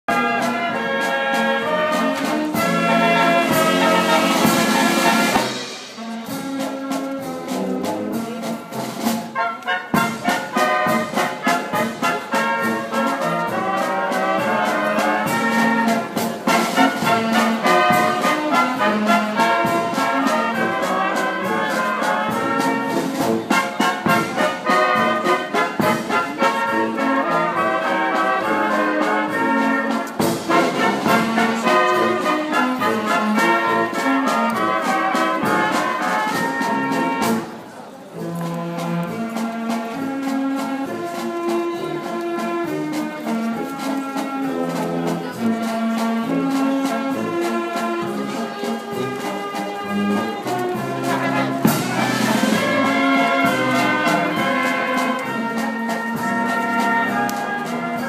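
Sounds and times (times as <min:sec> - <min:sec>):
wind band playing: 0:00.0 - 0:58.0
snare and bass drum: 0:00.1 - 0:27.5, 0:29.3 - 0:37.6, 0:50.8 - 0:57.8.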